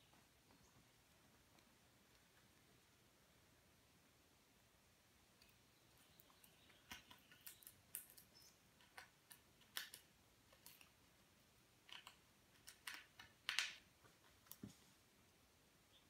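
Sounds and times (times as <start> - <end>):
squirrel scrabbling clicks and scratches: 5.3 - 14.7.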